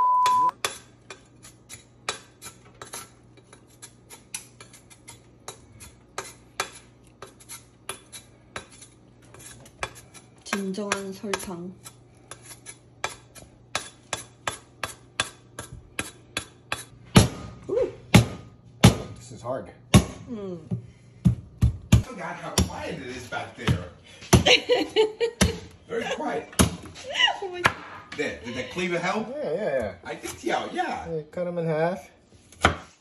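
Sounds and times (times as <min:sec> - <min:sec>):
knife scraping sugarcane: 0:00.6 - 0:17.0.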